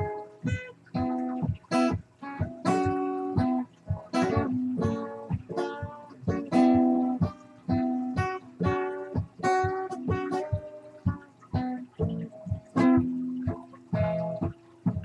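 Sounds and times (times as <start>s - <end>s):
guitar plucked notes and chords: 0.0s - 15.0s.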